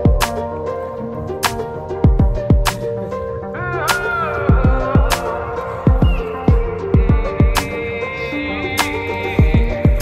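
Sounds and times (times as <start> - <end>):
sliding melodic line: 0.0 - 10.0
deep kick drums: 2.1 - 2.7, 4.5 - 5.1, 9.4 - 10.0.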